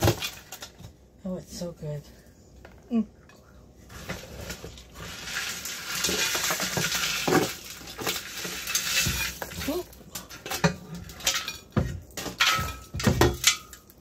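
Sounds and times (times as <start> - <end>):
rasping scrape of pan: 3.9 - 9.6
enamel pan knocks and clatters: 6.0 - 9.7, 10.3 - 14.0.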